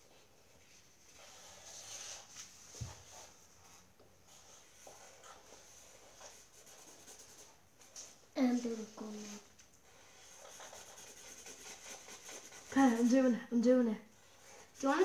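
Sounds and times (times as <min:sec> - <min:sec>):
markers scratching on paper: 0:01.1 - 0:13.3, 0:14.3 - 0:15.0.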